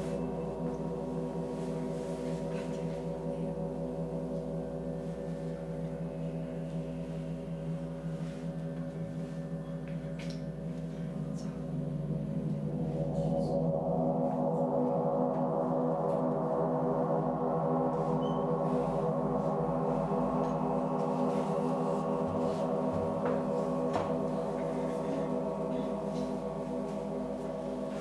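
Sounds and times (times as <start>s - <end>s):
large gong ringing: 0.0s - 28.0s.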